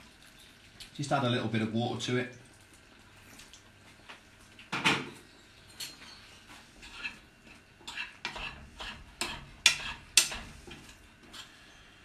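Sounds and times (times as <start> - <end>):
spoon scraping a frying pan: 5.8 - 11.8.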